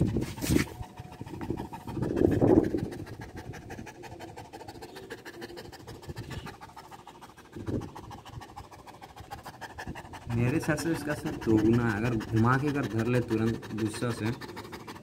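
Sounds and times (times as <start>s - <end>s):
scratchy rubbing noise: 0.0s - 3.0s
dog panting: 0.0s - 15.0s.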